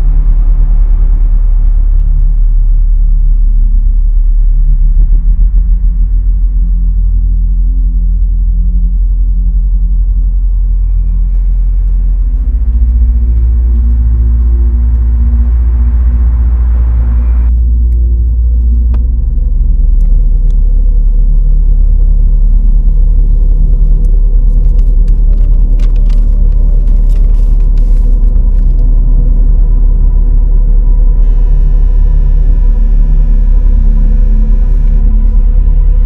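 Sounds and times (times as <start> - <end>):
low rumbling drone: 0.0 - 36.0
paper rustling and crinkling: 24.5 - 28.8.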